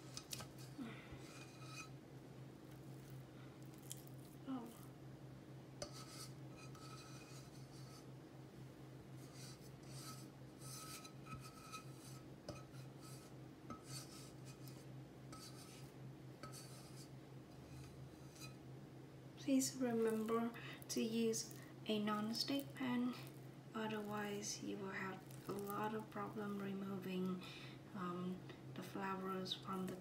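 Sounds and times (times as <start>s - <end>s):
spatula scraping a pan: 0.0s - 2.0s, 5.8s - 8.1s, 9.2s - 18.6s, 25.1s - 26.1s
steady low hum: 0.0s - 30.0s.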